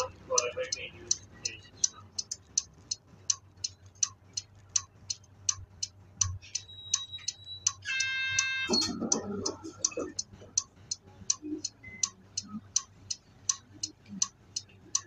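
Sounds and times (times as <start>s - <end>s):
turn signal relay ticking: 0.0s - 15.0s.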